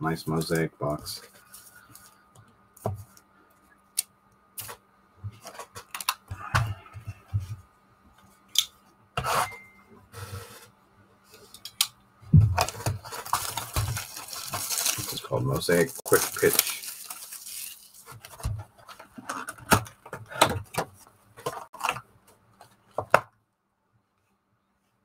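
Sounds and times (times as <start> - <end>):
cardboard rustling and scraping: 10.2 - 10.7, 12.5 - 23.1.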